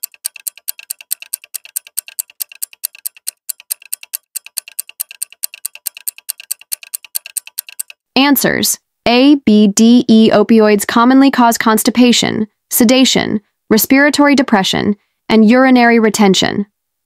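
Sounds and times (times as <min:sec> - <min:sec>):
rapid clock-like ticking: 0:00.0 - 0:08.0.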